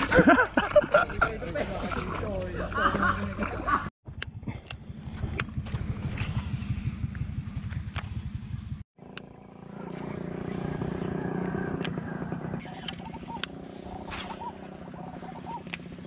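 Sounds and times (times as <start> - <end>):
bird chirps: 12.0 - 15.8.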